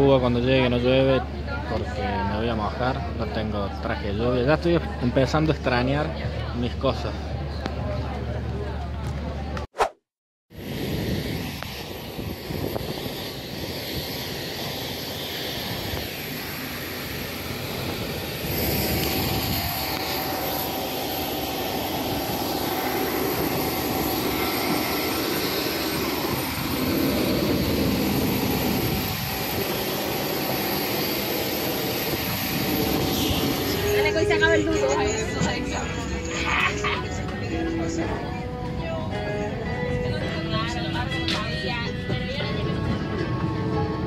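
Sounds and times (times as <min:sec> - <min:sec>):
jet turbine rush: 0:10.6 - 0:37.2
thin turbine whine: 0:10.6 - 0:38.4.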